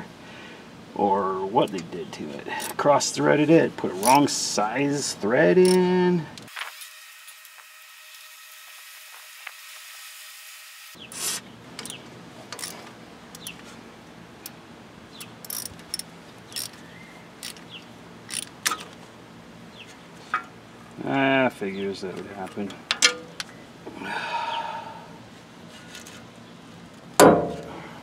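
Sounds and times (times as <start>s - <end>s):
faint steady hum: 0.0s - 6.5s, 11.1s - 28.0s
ratchet wrench clicking: 12.6s - 13.5s, 15.2s - 16.8s, 17.4s - 17.6s, 18.3s - 18.8s.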